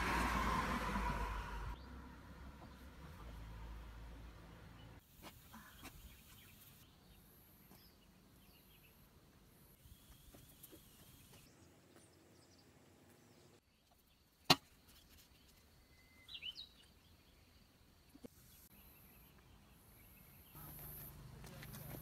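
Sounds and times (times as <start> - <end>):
faint outdoor background: 0.0 - 22.0
bird chirping: 14.9 - 21.0.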